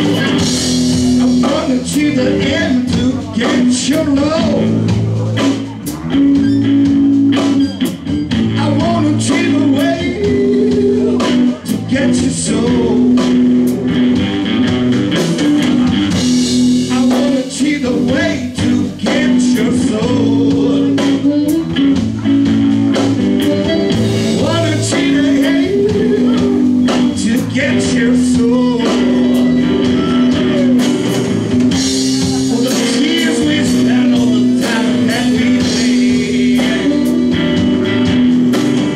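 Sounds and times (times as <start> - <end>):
blues band playing live: 0.0 - 38.9
harmonica bending notes: 21.0 - 27.1.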